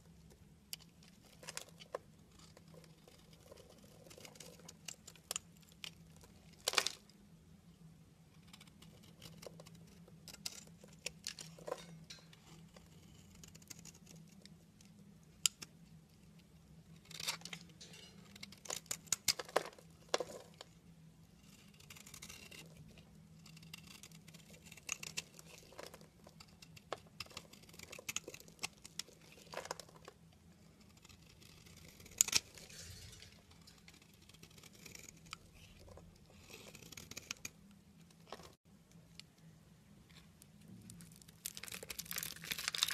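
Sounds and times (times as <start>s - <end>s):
knife scraping soap: 0.8s - 6.6s, 8.3s - 14.5s, 21.4s - 30.0s, 30.6s - 38.6s
sharp crack of soap: 40.9s - 42.9s.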